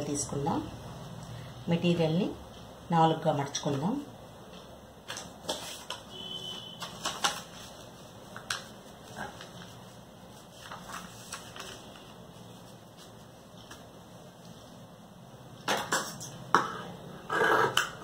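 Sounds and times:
fabric rustling: 0:05.5 - 0:14.8.

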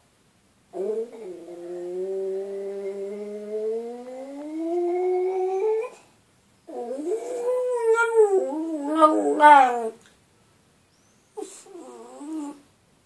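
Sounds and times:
small dog howling: 0:00.8 - 0:06.0, 0:06.7 - 0:10.0.

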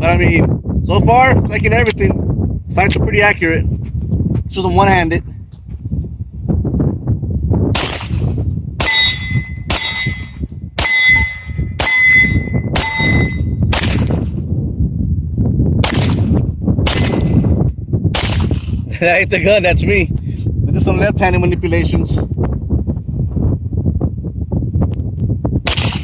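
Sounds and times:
wind rumble on microphone: 0:00.0 - 0:26.0
pistol shots: 0:07.7 - 0:10.1, 0:12.8 - 0:14.2, 0:15.8 - 0:17.4, 0:18.1 - 0:18.8, 0:25.7 - 0:26.0
short ringing tone: 0:08.9 - 0:13.6.

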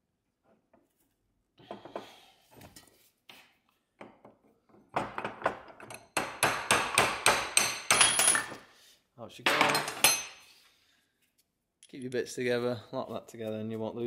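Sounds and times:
metal scrapes and clinks: 0:09.6 - 0:10.5.

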